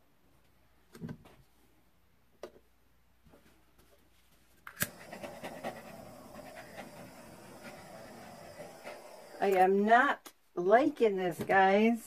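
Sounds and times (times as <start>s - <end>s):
heat gun blowing whir: 4.8s - 9.9s.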